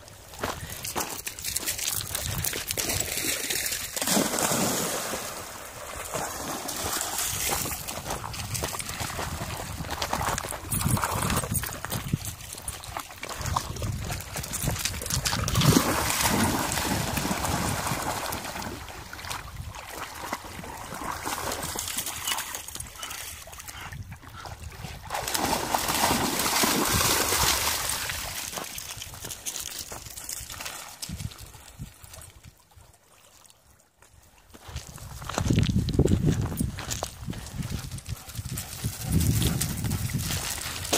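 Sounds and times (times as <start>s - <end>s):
dogs splashing in water: 1.1s - 23.8s, 24.4s - 29.7s.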